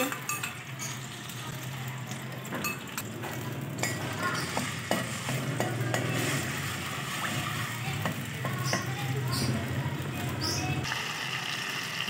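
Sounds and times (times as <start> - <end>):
ladle clinking against pan: 0.0 - 1.0
faint sizzle: 0.0 - 12.0.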